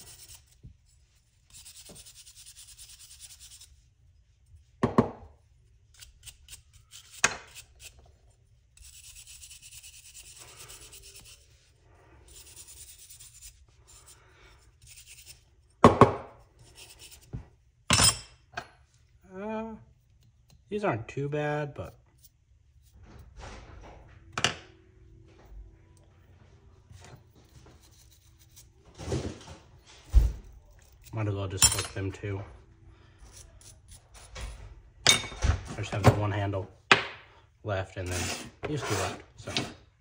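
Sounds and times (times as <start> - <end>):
wire brush scrubbing metal: 0.0 - 4.6, 8.7 - 15.5.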